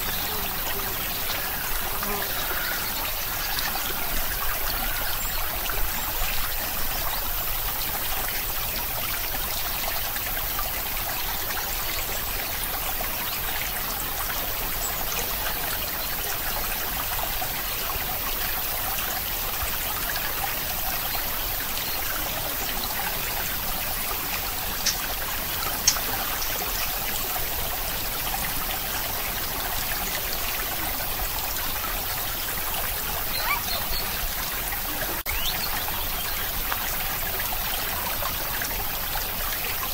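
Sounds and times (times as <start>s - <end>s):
steady hiss of running water: 0.0s - 39.9s
faint clicks: 25.8s - 26.5s.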